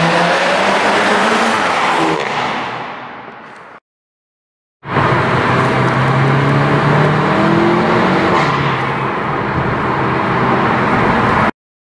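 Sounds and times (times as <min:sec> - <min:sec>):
car engine accelerating: 0:04.9 - 0:11.5.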